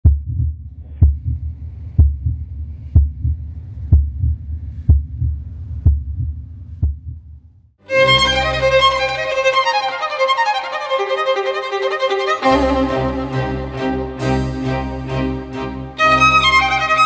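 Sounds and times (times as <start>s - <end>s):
heartbeat thumps: 0.0s - 7.7s
violin music: 7.8s - 17.0s.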